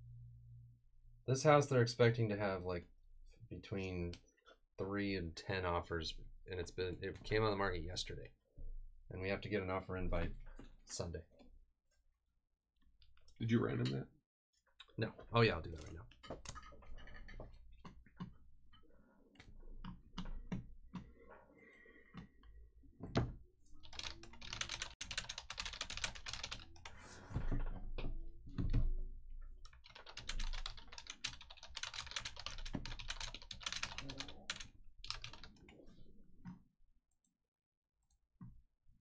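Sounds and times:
computer keyboard typing: 23.8 - 27.0, 29.6 - 35.7.

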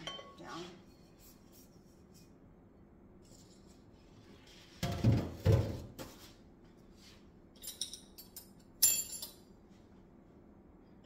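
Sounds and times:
dull knocks of kitchenware: 4.8 - 6.0.

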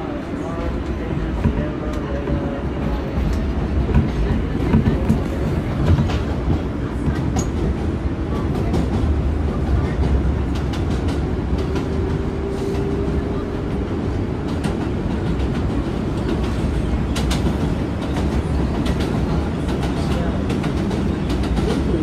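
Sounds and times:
subway car rumble: 0.0 - 22.0.

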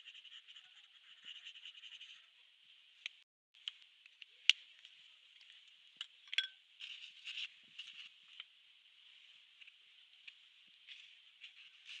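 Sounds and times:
marker scratching on paper: 0.0 - 2.3.

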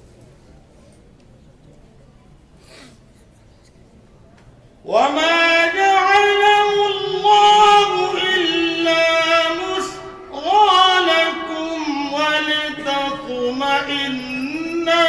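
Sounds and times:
man reciting melodically: 4.8 - 15.0.

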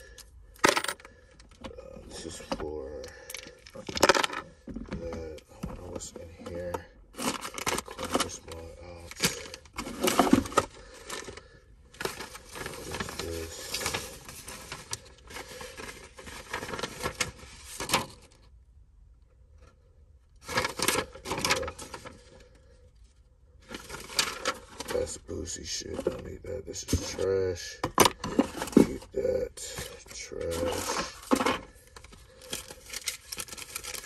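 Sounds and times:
paper and plastic rustling: 2.2 - 18.5, 20.4 - 22.5, 23.6 - 34.0.

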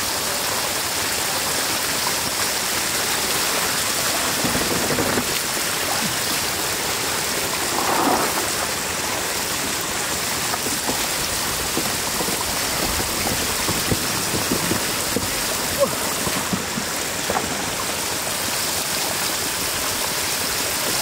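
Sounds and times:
floodwater rushing and splashing: 0.0 - 21.0.

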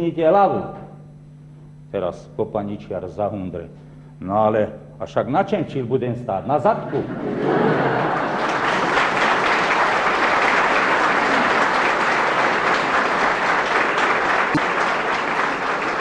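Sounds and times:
audience laughter: 6.8 - 13.6
audience applauding: 7.6 - 16.0.

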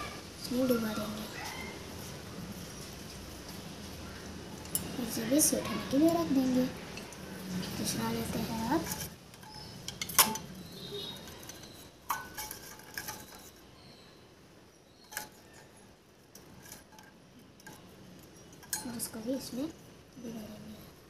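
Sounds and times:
metal spoon clinking on steel bowl: 4.6 - 5.2, 8.2 - 13.7, 15.0 - 19.6.

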